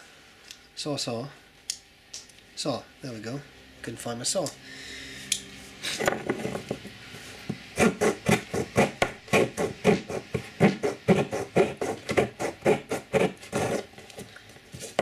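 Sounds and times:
saw blade cutting wood: 7.8s - 13.9s.

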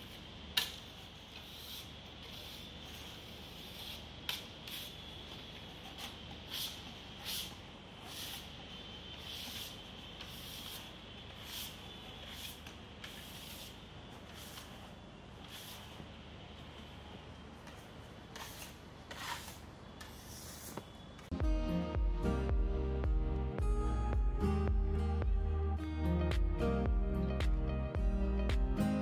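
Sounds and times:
trowel scraping on wall: 0.6s - 5.2s, 5.8s - 14.8s, 18.3s - 20.9s.

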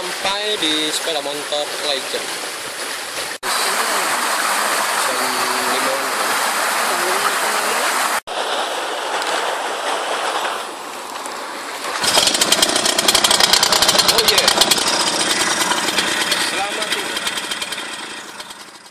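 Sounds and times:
motorcycle engine idling: 12.0s - 18.9s.

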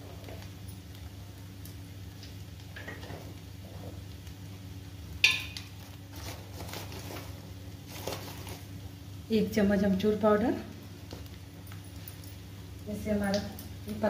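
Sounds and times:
handling rustles: 5.7s - 8.8s.

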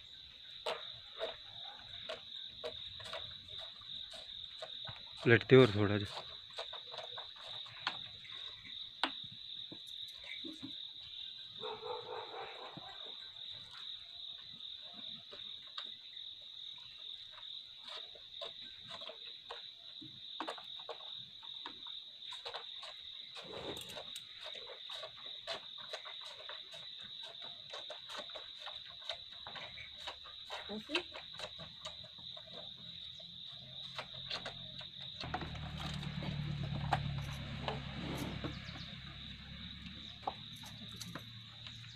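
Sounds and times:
insects chirring: 0.0s - 41.9s.

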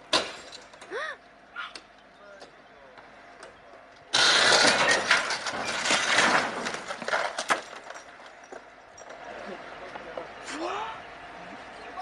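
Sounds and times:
vehicle crashing onto road: 4.1s - 8.4s
metal clattering and scraping: 4.2s - 9.4s.

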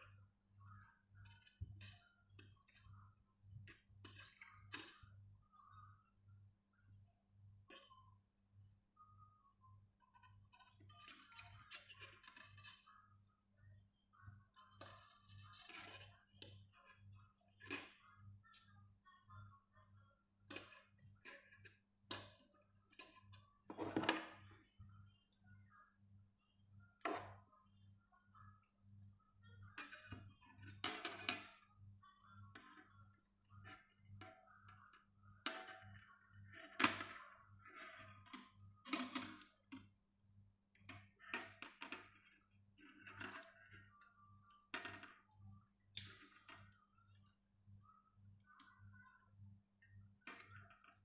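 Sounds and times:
wire and pliers clicking: 45.9s - 46.3s.

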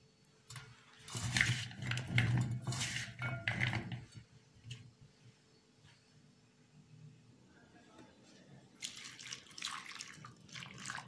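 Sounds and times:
potato sticks clattering in metal bowl: 0.5s - 4.1s.

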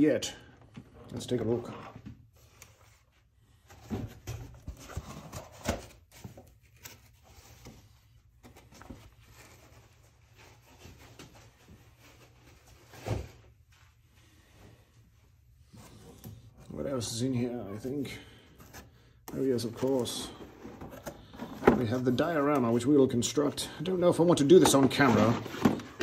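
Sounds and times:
toy box handling rustling: 24.2s - 26.0s.

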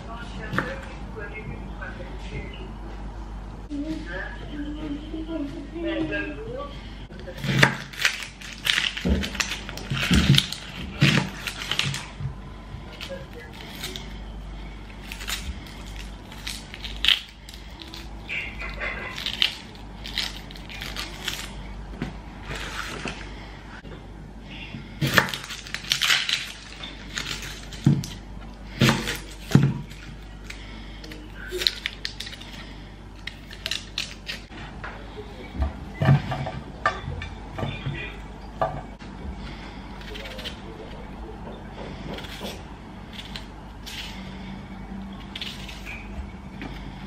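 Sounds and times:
onion skins crackling: 7.3s - 12.2s, 12.8s - 23.8s, 24.9s - 34.5s, 39.4s - 41.0s, 41.9s - 47.0s.

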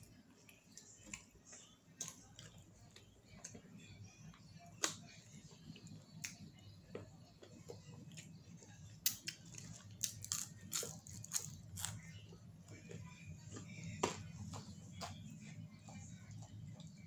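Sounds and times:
person chewing: 9.0s - 12.1s.

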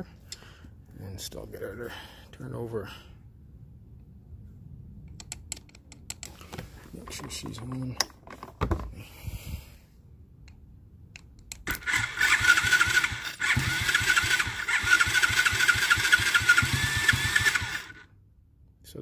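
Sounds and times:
starter motor cranking engine: 11.6s - 18.1s.

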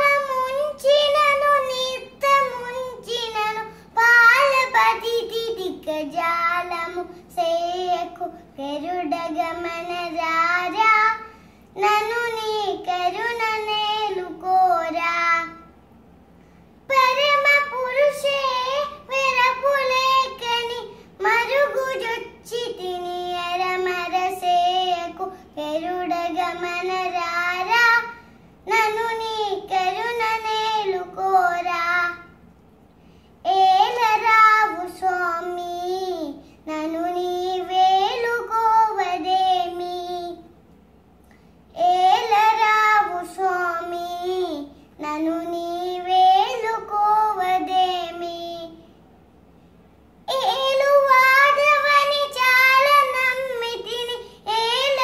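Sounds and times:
girl singing unaccompanied: 0.0s - 15.9s, 16.8s - 32.5s, 33.4s - 40.6s, 41.7s - 49.0s, 50.2s - 55.0s.

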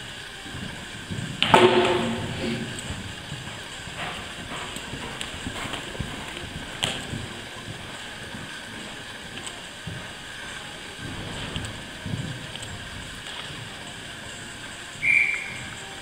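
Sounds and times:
horse hoofbeats on sand: 0.0s - 16.0s
sharp knock: 1.4s - 2.6s.

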